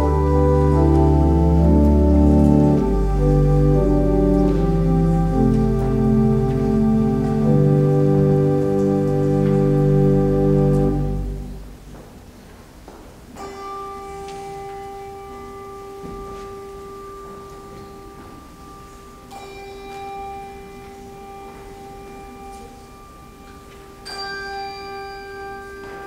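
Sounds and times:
loud held organ chord: 0.0s - 12.0s.

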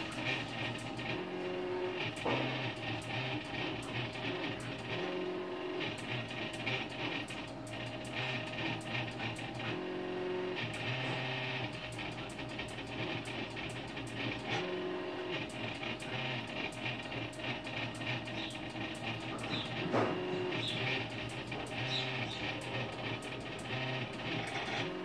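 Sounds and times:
fast ticks: 0.0s - 25.0s
stepper motors whining: 0.0s - 25.0s.

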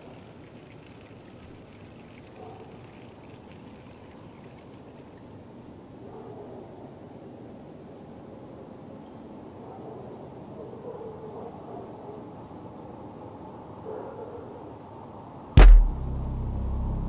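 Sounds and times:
low hum: 15.6s - 17.0s
low rumble: 15.6s - 17.0s.

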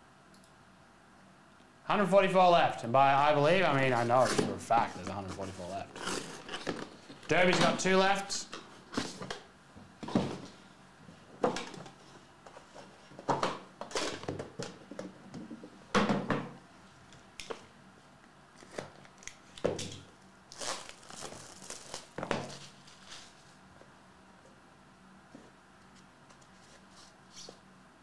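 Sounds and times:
packaging crinkling and tearing: 4.9s - 7.2s, 20.5s - 23.4s.

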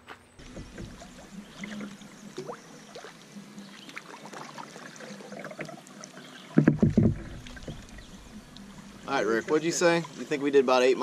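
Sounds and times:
paddle drips and splashes: 0.4s - 10.9s
low thump: 6.6s - 8.3s.

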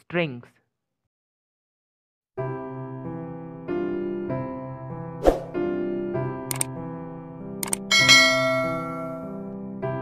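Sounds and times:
light keyboard music: 2.4s - 10.0s
mouse clicks: 7.6s - 7.8s
bright bell ding: 7.9s - 9.3s.

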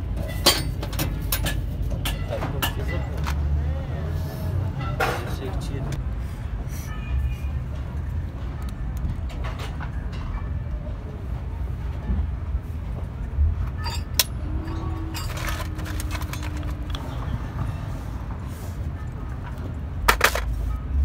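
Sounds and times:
metal parts clinking and clicking: 13.7s - 17.1s, 20.1s - 20.6s.

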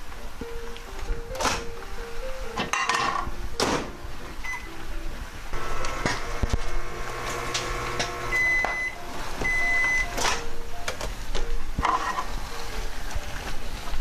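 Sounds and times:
microwave long beeps: 4.4s - 4.8s, 8.1s - 10.2s
microwave oven humming: 5.5s - 10.6s.

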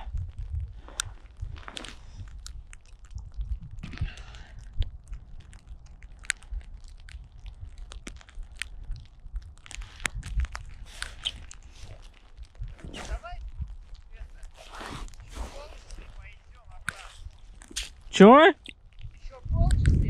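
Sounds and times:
low rumble: 0.0s - 20.0s
snow and ice crunching: 0.0s - 20.0s.

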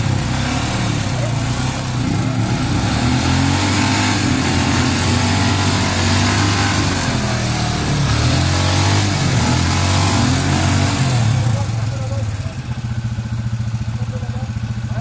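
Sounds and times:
quad engines revving: 0.0s - 15.0s.

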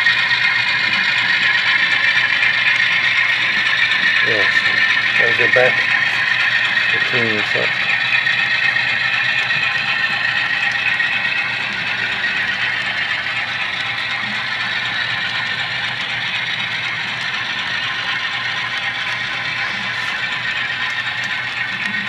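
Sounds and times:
low steady hum: 0.0s - 22.0s
model train cars rolling: 0.0s - 22.0s.

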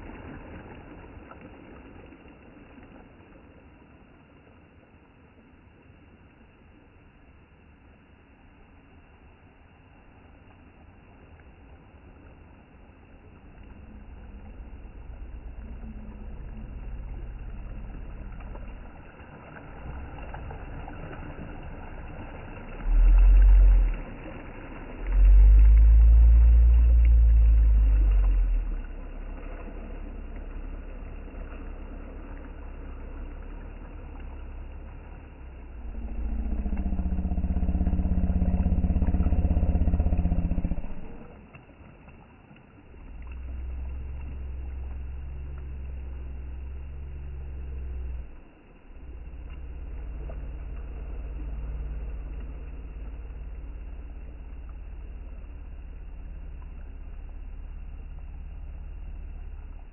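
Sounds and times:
motor engine running: 13.2s - 41.5s, 42.9s - 59.9s.

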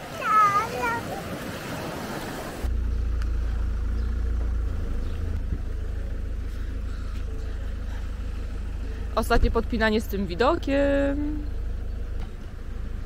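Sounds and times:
waves washing on sandy shore: 0.0s - 2.7s
car engine idling: 2.6s - 13.0s.

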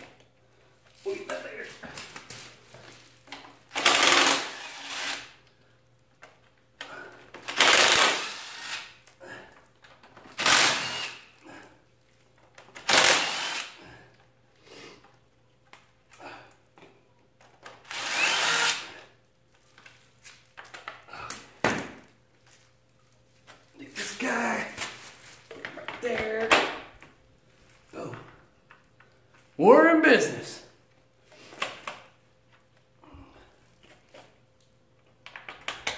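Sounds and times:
impact driver bursts: 3.7s - 5.4s, 7.4s - 9.0s, 10.3s - 11.4s, 12.8s - 13.8s, 17.8s - 19.0s.

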